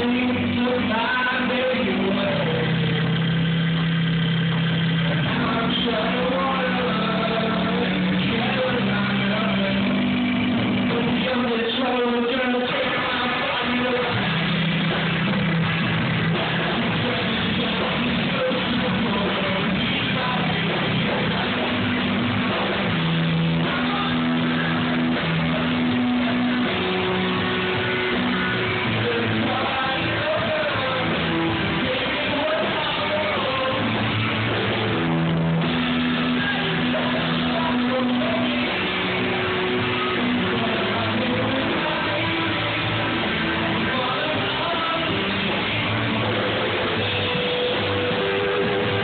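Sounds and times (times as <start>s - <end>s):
person singing: 0.0s - 49.0s
rock band playing: 0.0s - 49.0s.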